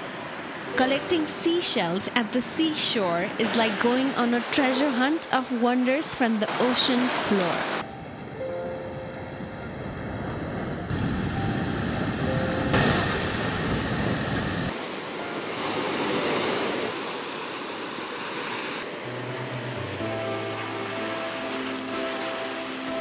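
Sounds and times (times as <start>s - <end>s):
waves breaking on a beach: 0.0s - 7.8s, 14.7s - 23.0s.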